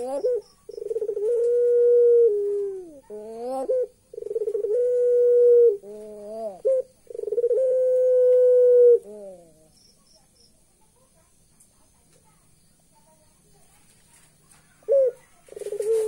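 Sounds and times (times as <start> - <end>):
dove cooing: 0.0 - 9.8, 14.7 - 16.0.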